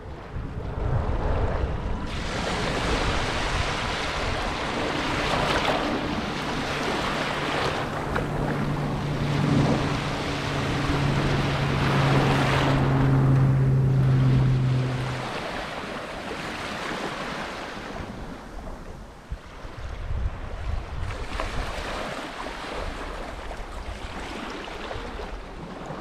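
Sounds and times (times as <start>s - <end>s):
low engine drone: 0.0s - 19.0s
surf washing onto beach: 0.0s - 26.0s
wind rumble on microphone: 0.0s - 26.0s.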